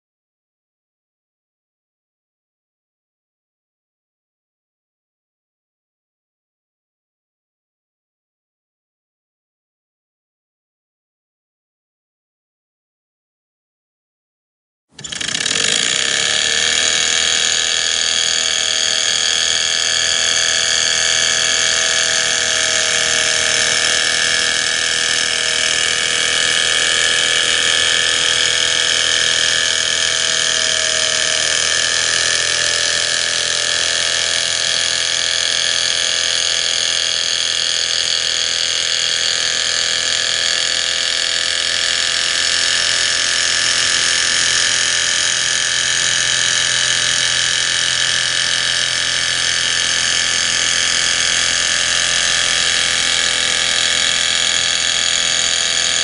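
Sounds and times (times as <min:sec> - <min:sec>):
model engine whirring: 0:14.9 - 0:56.0.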